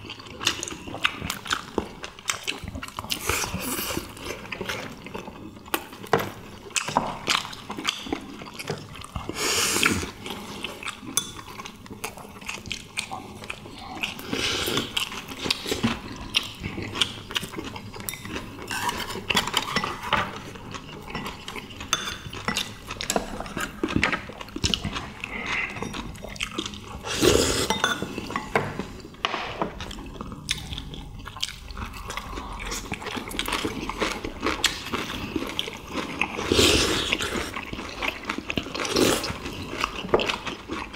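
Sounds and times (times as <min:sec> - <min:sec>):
people chewing: 0:00.0 - 0:40.9.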